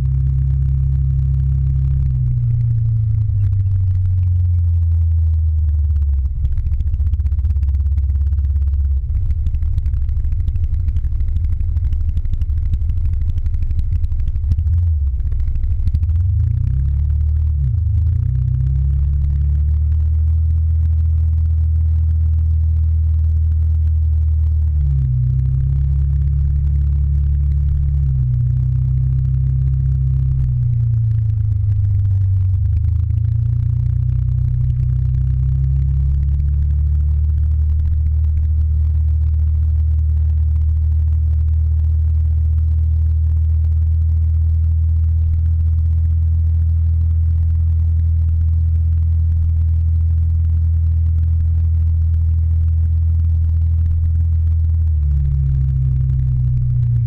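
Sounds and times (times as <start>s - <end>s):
motor scooter engine running: 0.0s - 21.7s.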